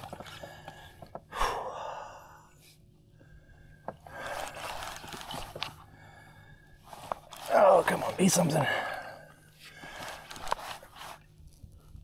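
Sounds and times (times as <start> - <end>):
person breathing hard: 0.4 - 2.6.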